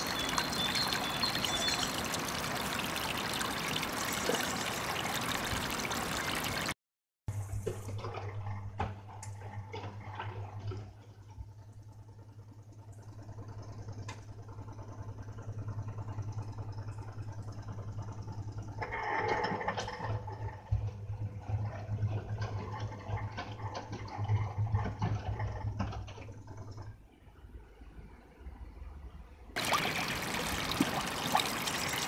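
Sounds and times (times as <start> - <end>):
washing machine motor hum: 0.0 - 6.7, 7.3 - 27.1, 29.6 - 32.0
water and laundry sloshing: 0.0 - 6.8, 19.0 - 26.9, 29.6 - 32.0.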